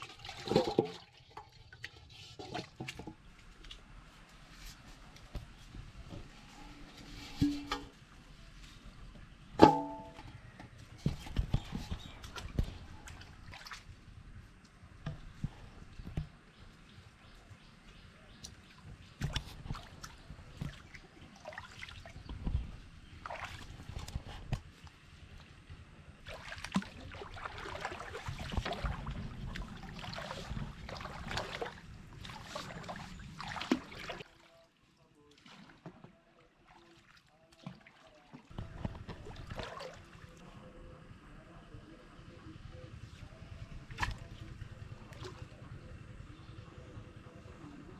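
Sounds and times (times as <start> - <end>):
water sloshing around boat: 0.0 - 47.8
metal bowl ringing: 9.7 - 10.2.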